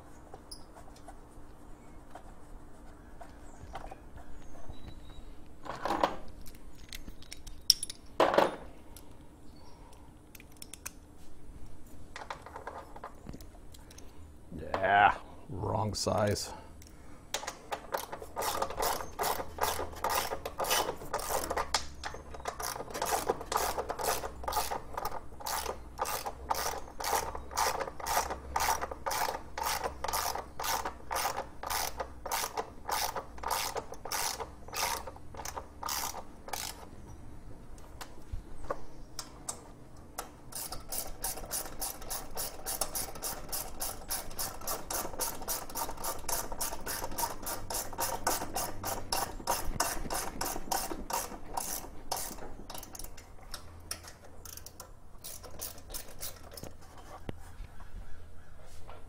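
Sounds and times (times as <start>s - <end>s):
socket ratchet clicking: 17.4s - 36.9s, 40.2s - 56.7s.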